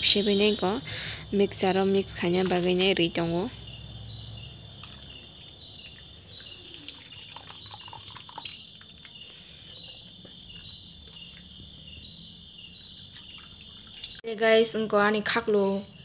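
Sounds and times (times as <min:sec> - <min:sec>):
crickets chirping: 0:00.0 - 0:16.0
water splashing and dripping: 0:04.6 - 0:11.6, 0:13.0 - 0:14.3.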